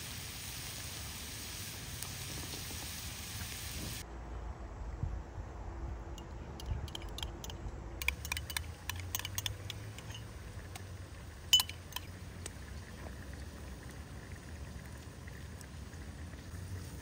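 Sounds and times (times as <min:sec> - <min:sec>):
light sharp clicks and clinks: 0:06.2 - 0:10.9, 0:11.5 - 0:12.6.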